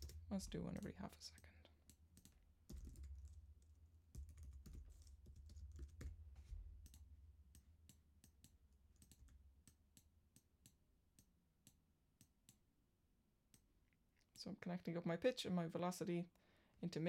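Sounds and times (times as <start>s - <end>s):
computer keyboard typing: 0.0s - 6.2s, 6.8s - 12.6s.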